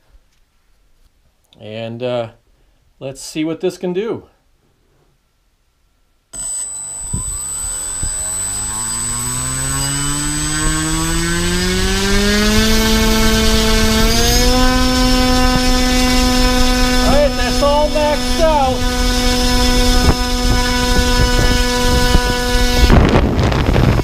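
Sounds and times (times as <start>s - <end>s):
propeller hum rising in pitch: 6.4s - 24.0s
thin high whine: 6.4s - 24.0s.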